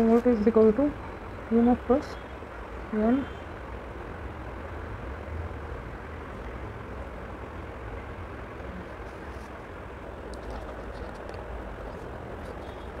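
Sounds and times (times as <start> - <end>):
low room noise rumble and hiss: 0.0 - 13.0.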